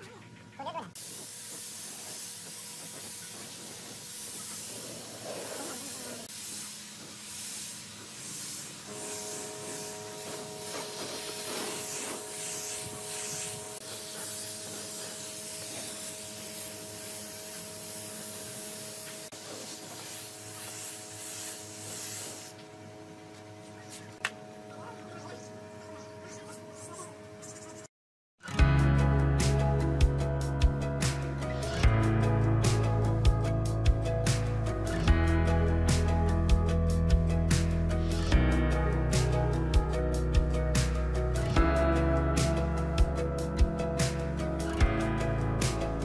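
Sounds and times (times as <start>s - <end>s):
spray gun hissing: 1.0s - 22.6s.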